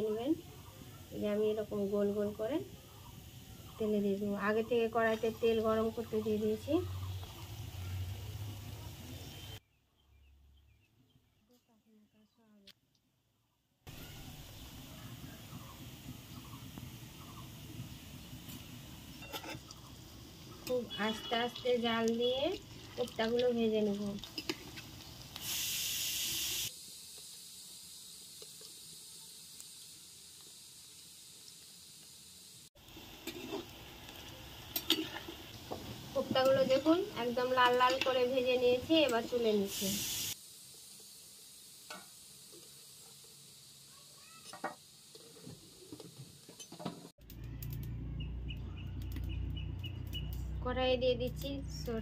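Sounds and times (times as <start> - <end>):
food deep-frying in hot oil: 0.0 - 9.6, 13.9 - 52.0
oil popping: 18.5 - 26.7
metal spatula scraping a pan: 19.2 - 19.8, 33.2 - 33.7, 34.7 - 35.4.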